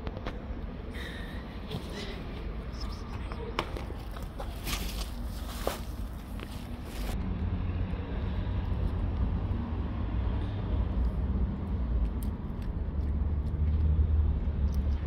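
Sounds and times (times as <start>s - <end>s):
road traffic rumble: 0.0s - 15.0s
cat crunching dry kibble: 11.0s - 15.0s.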